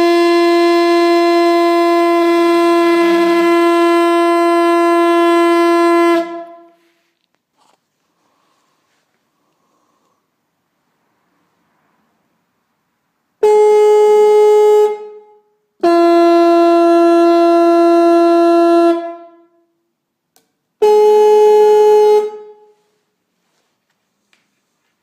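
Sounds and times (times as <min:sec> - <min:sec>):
electric horn blasts: 0:00.0 - 0:07.0, 0:13.4 - 0:19.8, 0:20.8 - 0:23.0.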